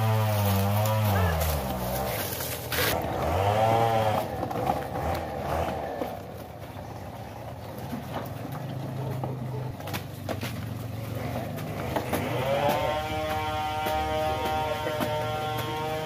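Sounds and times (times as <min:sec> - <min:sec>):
engine idling and revving: 0:00.0 - 0:16.0.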